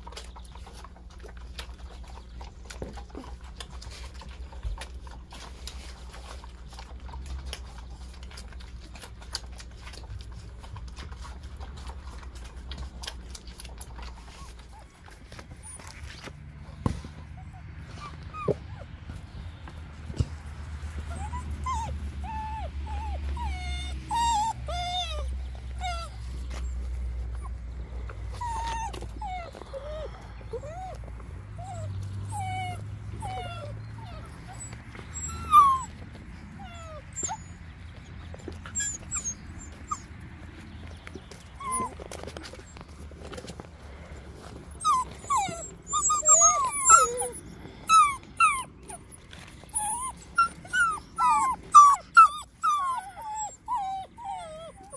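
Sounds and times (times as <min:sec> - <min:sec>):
puppies whimpering and yipping: 0:00.0 - 0:54.9.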